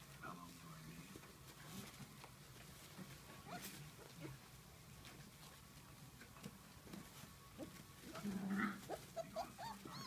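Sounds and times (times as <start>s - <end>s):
puppies whimpering and yipping: 8.1s - 10.0s
puppy crying: 8.6s - 10.0s.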